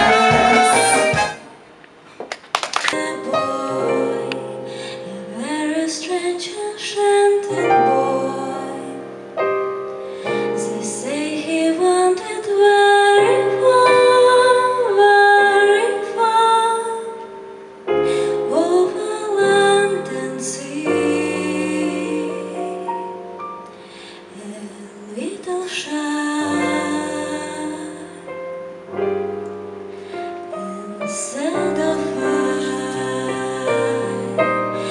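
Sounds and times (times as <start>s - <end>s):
instrumental accompaniment: 0.0s - 1.7s
woman singing a slow song: 2.9s - 9.3s, 10.2s - 28.5s, 30.4s - 34.9s.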